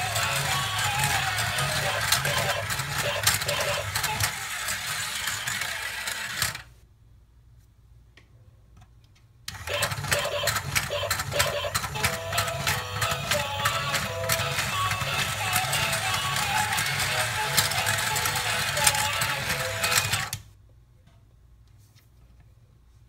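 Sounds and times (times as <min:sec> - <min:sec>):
toy stairs clicking: 0:00.0 - 0:06.6, 0:09.5 - 0:20.4
small electric motor whirring: 0:00.0 - 0:06.7.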